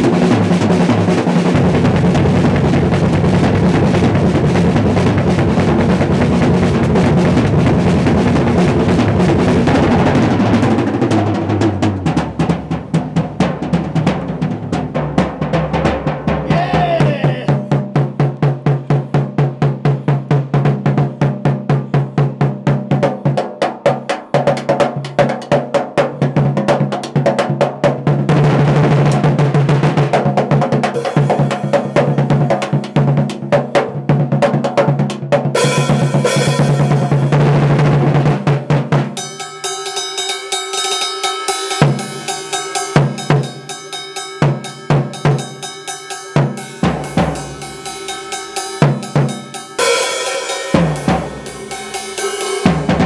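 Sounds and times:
drum kit solo: 0.0s - 53.0s
cymbal wash: 31.0s - 33.2s, 35.6s - 37.8s, 39.2s - 53.0s.

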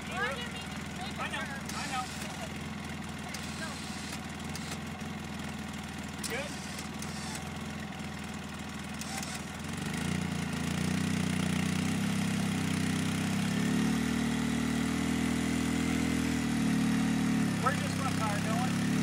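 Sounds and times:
vehicle engine running under load: 0.0s - 19.0s.

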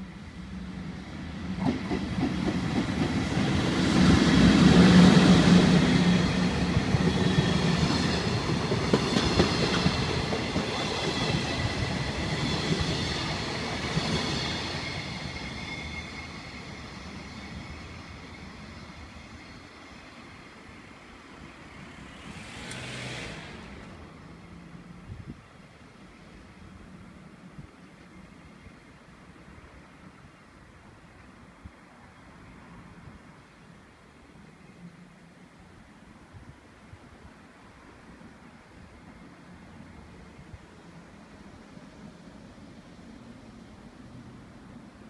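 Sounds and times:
train wheels running over rails: 1.5s - 19.6s.

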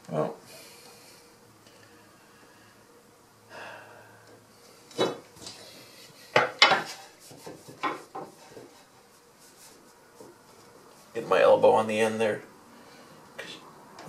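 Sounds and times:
soft rustle: 6.9s - 11.3s.

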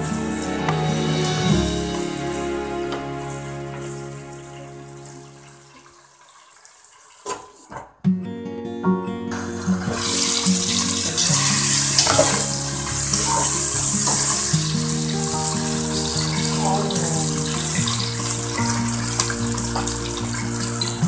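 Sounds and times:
background music: 0.0s - 5.8s, 8.1s - 21.0s
meat sizzling in hot oil: 10.0s - 21.0s.

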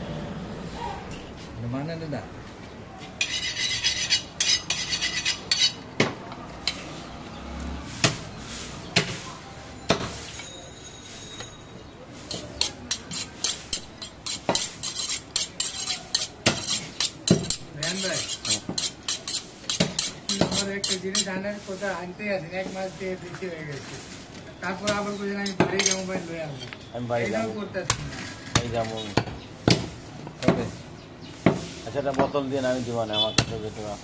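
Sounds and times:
knife strokes on honing steel: 3.2s - 5.8s, 12.2s - 21.8s.

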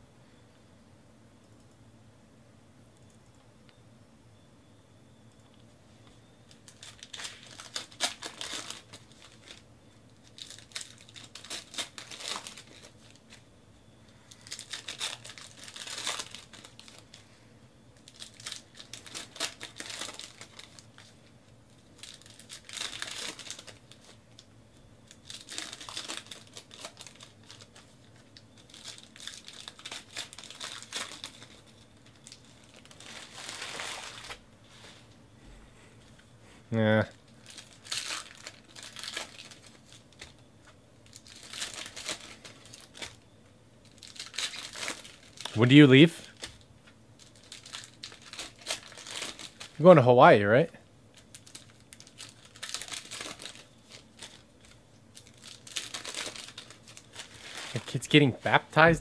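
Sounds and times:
card-pack wrappers tearing and crinkling: 6.5s - 13.4s, 14.2s - 17.2s, 18.0s - 34.4s, 37.3s - 40.4s, 41.0s - 43.2s, 43.8s - 49.8s, 51.1s - 58.2s.

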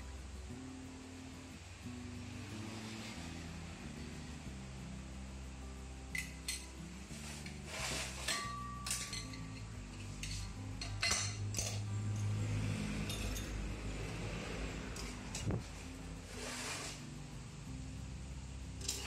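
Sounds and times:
metal parts clinking and knocking: 8.3s - 12.3s, 13.0s - 13.7s, 18.8s - 19.0s.

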